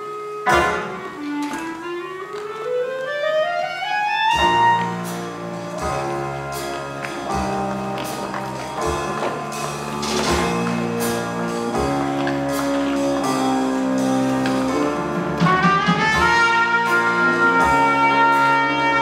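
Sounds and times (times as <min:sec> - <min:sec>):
clarinet sliding upward: 0:00.0 - 0:06.6
jazz band with brass chords: 0:00.0 - 0:19.0.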